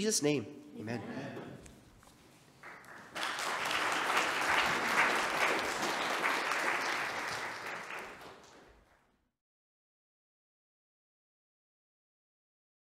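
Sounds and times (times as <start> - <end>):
audience applauding: 2.6 - 9.1.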